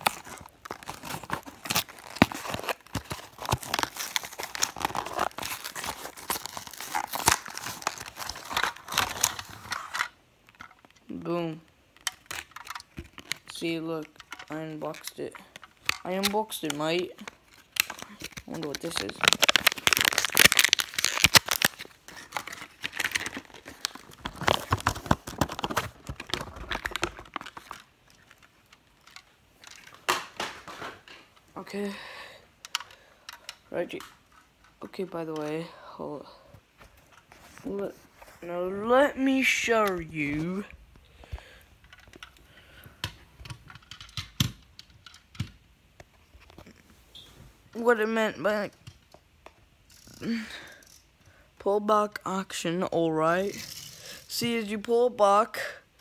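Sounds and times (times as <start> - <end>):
cardboard rustling and tearing: 0.0 - 10.0, 16.1 - 28.6.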